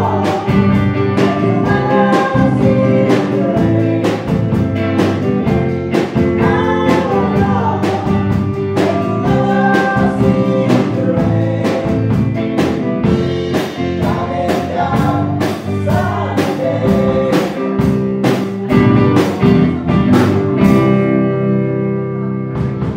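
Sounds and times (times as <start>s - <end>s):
women singing: 0.0s - 4.5s, 6.2s - 12.3s, 14.0s - 17.9s
drum kit beat: 0.0s - 21.8s, 22.4s - 22.9s
electric guitar: 0.0s - 22.9s.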